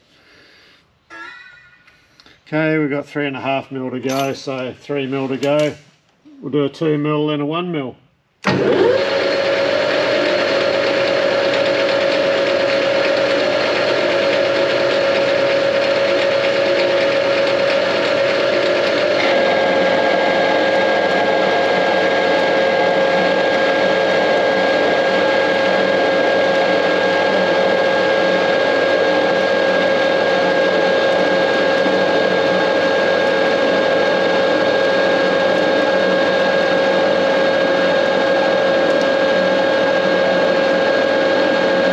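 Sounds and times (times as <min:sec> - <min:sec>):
higher whine: 0:01.0 - 0:02.9
metal lathe whining: 0:08.5 - 0:41.9.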